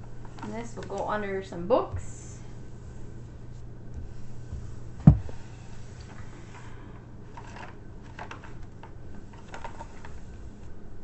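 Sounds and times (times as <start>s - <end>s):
sharp thump on table: 5.0s - 5.4s.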